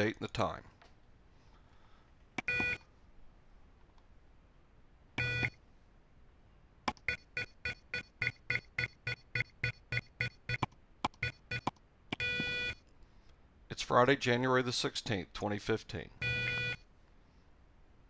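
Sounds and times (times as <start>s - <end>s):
long buzzer beep: 2.5s - 2.8s, 5.2s - 5.6s, 7.0s - 12.8s, 16.2s - 16.8s
short buzzer beeps: 2.5s - 2.8s, 5.2s - 5.6s, 7.0s - 12.8s, 16.2s - 16.8s.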